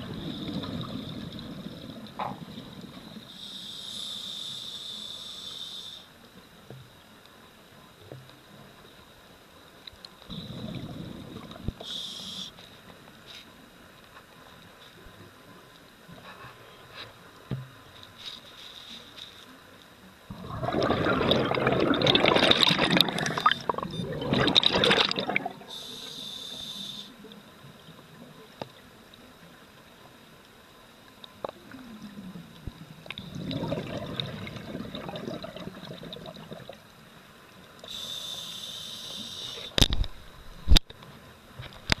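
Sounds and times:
exhaled bubbles rushing underwater: 0:00.0 - 0:03.3, 0:10.3 - 0:11.8, 0:20.3 - 0:25.7, 0:32.8 - 0:36.8
regulator hissing on inhale: 0:03.1 - 0:06.2, 0:10.3 - 0:12.7, 0:25.6 - 0:27.3, 0:37.8 - 0:39.8.

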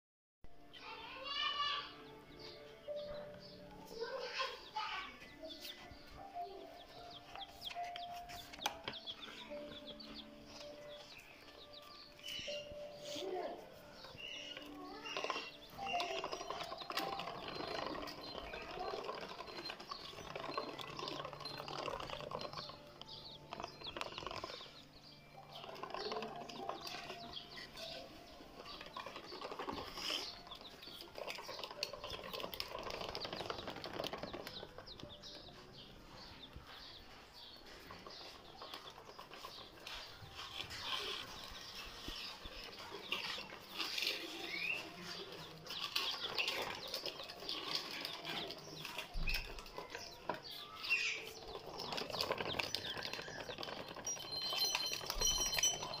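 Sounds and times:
toy truck rattling on tiles: 0:14.0 - 0:35.3, 0:38.1 - 0:56.0.

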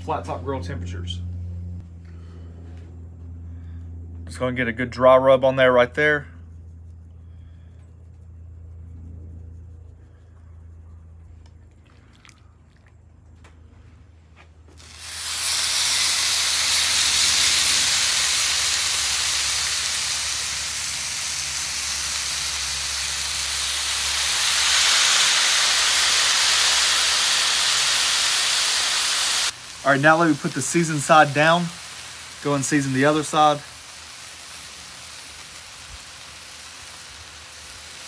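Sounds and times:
low steady hum: 0:00.0 - 0:24.8
meat sizzling on a griddle: 0:14.8 - 0:38.0.

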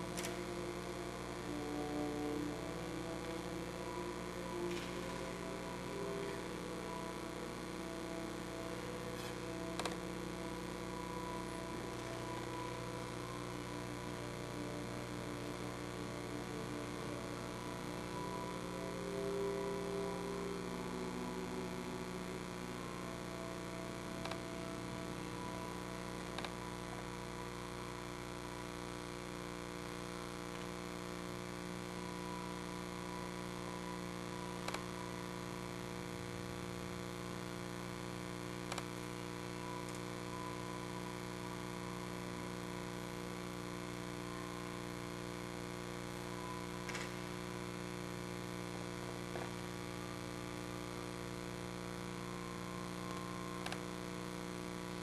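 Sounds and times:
electrical mains hum: 0:00.0 - 0:55.0.

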